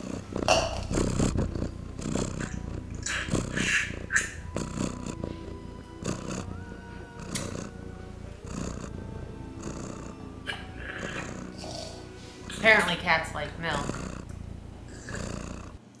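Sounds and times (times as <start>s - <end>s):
person slurping milk: 0.0s - 6.4s, 9.6s - 12.6s, 13.8s - 15.8s
faint background music: 0.0s - 15.9s.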